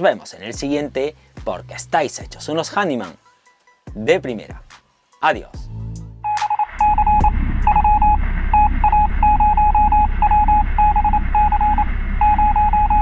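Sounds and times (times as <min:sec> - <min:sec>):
low rumbling static: 0:06.2 - 0:13.0
morse code beeping: 0:06.2 - 0:13.0.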